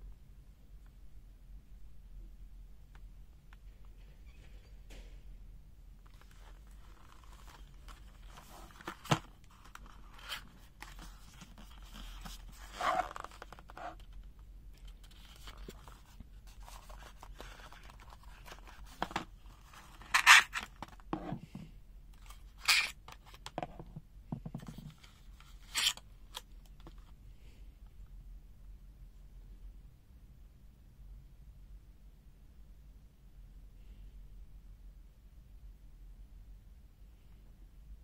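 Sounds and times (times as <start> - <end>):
cardboard packaging rubbing and sliding: 6.2 - 14.0.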